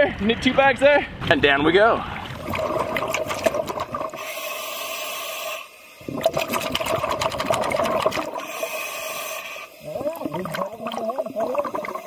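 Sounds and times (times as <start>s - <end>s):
exhaled bubbles rushing: 2.1s - 4.3s, 6.0s - 8.7s, 9.8s - 12.0s
regulator hissing inhale: 4.1s - 6.0s, 8.2s - 10.0s.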